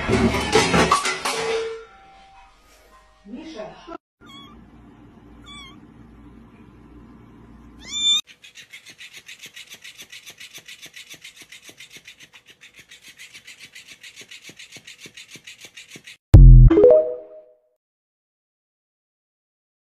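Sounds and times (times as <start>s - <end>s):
kitten meowing: 4.2s - 4.6s, 5.4s - 5.8s, 7.8s - 8.2s
cat toy clicking rasp: 8.3s - 16.2s.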